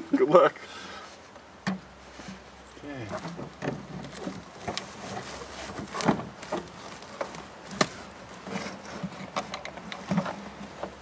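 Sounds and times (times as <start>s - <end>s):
knocks clicks and scraping: 3.0s - 11.0s.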